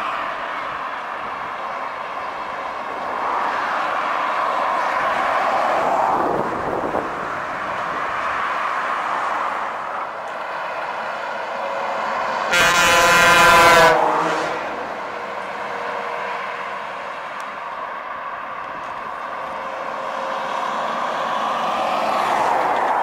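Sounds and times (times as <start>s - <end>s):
heavy trucks passing: 0.0s - 23.0s
truck air horn: 11.7s - 14.9s.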